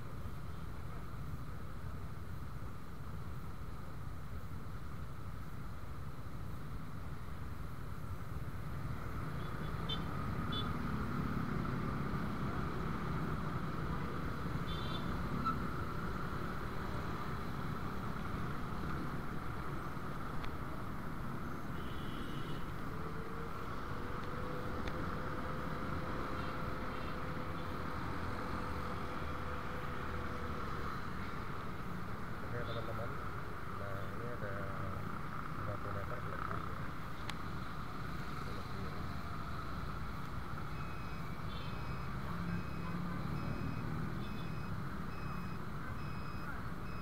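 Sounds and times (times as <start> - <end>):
traffic engine and road noise: 0.0 - 47.0
short high beeps: 40.8 - 47.0.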